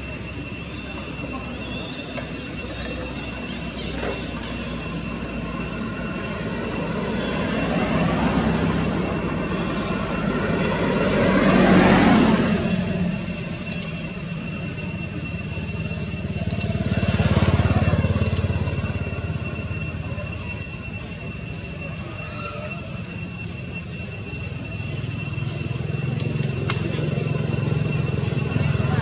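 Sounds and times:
high-pitched whine: 0.0 - 29.0
vehicles passing: 2.2 - 29.0.

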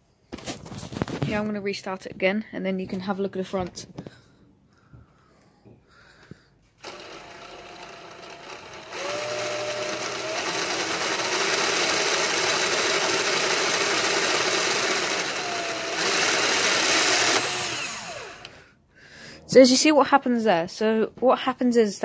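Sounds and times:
plastic gears spinning: 6.8 - 18.6
cordless drill motor whining: 6.8 - 18.7.

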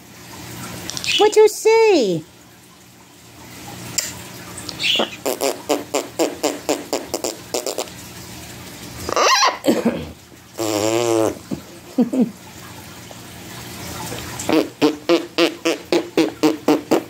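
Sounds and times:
buzzing raspberry: 4.8 - 7.9, 10.6 - 11.5, 14.5 - 17.0.

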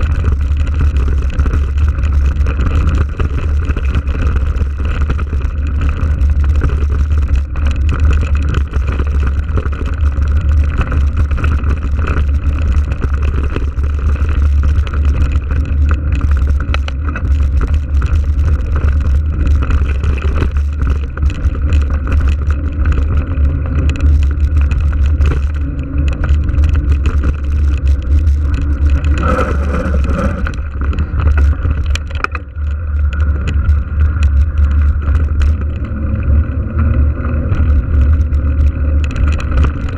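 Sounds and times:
bike clicks and rattles: 0.0 - 39.9
tyres rumbling on gravel: 0.0 - 39.9
wind buffeting microphone: 0.0 - 39.9.

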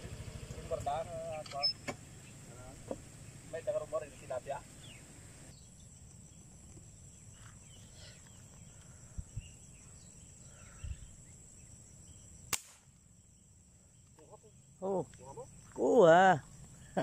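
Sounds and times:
high insect buzz: 0.0 - 17.0
airgun shot crack: 12.5 - 12.9.

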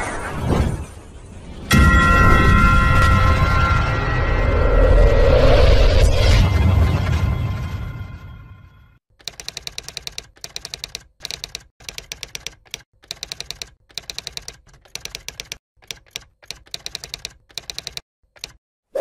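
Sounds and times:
typewriter key clicks: 9.2 - 18.6.

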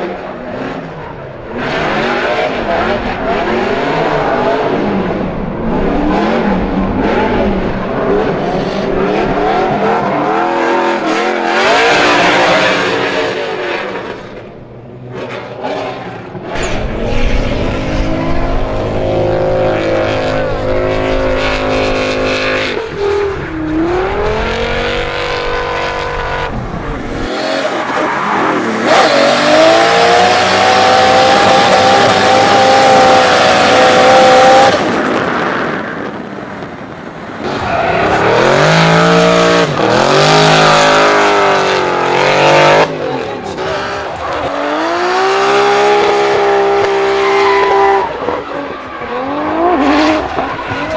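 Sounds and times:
car engines revving: 0.0 - 50.9
tyres squealing on asphalt: 37.4 - 38.8, 46.9 - 50.9.

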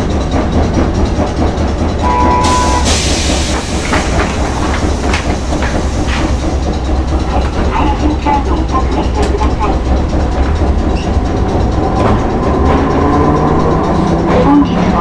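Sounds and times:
tram rumbling: 0.0 - 15.0
brief tone: 2.0 - 2.9
sharp clicks and knocks: 2.8 - 15.0.

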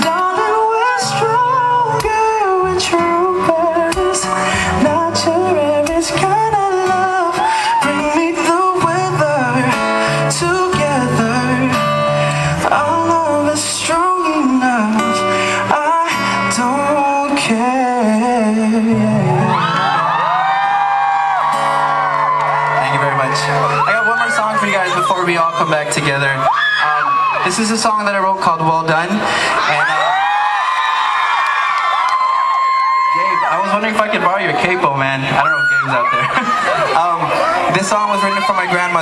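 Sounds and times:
strummed acoustic guitar: 0.0 - 20.1
man singing: 0.0 - 20.5.

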